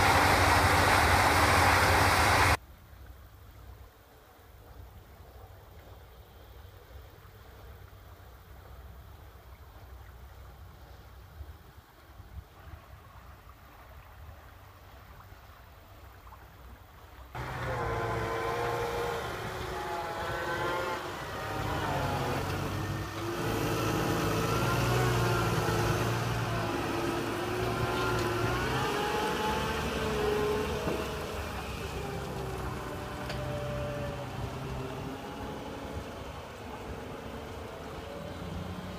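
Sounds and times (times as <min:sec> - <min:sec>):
tractor diesel engine running: 0:00.0 - 0:02.6, 0:17.4 - 0:38.9.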